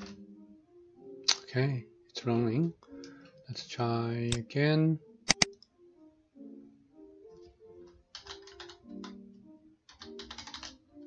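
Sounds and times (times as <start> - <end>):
soft background music: 0.0 - 11.0
sharp click: 5.3 - 5.6
computer keyboard typing: 7.8 - 9.2, 9.9 - 11.0.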